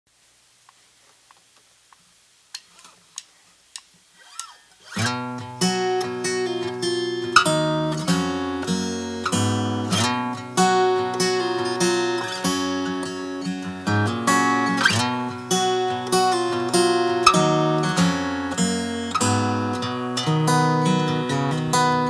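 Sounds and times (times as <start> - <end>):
acoustic guitar strumming: 4.2 - 22.0.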